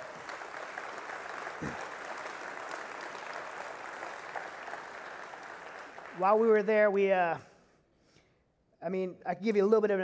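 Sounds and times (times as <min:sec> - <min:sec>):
crowd applauding: 0:00.0 - 0:07.1.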